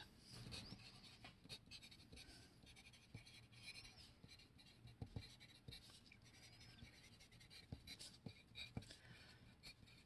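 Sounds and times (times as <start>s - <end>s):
pencil scratching on paper: 0.0s - 10.0s
pencil tapping on paper: 4.2s - 6.0s, 6.8s - 9.0s.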